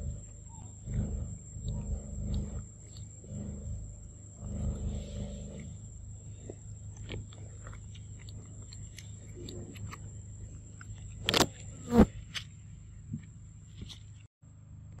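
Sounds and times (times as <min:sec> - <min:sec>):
steady low hum: 0:00.0 - 0:15.0
monkey chewing wet clicks: 0:06.6 - 0:10.1.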